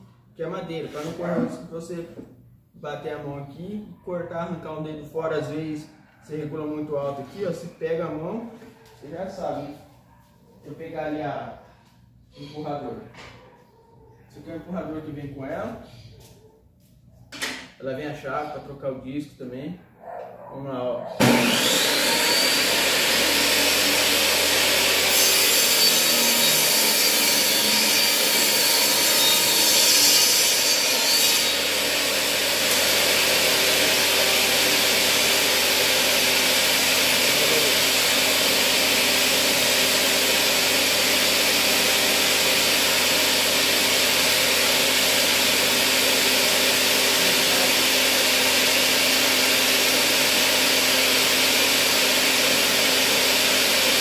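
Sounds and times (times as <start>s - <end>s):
saw blade cutting wood: 21.2s - 54.0s
table saw running: 21.2s - 54.0s.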